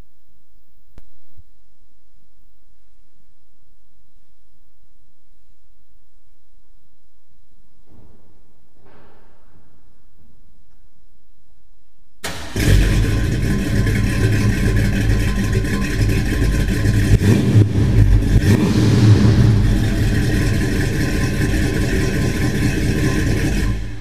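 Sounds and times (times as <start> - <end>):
engine revving: 12.2 - 24.0
engine starting and idling: 12.2 - 24.0.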